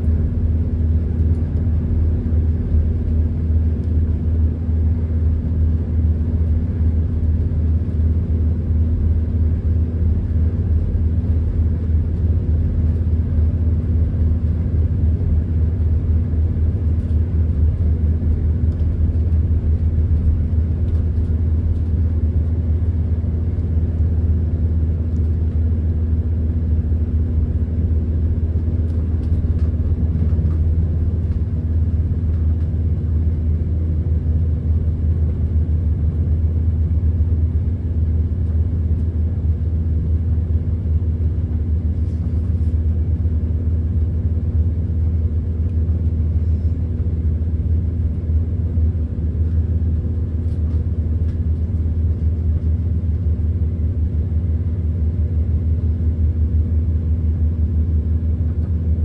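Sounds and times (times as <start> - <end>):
train diesel engine drone: 0.0 - 59.0.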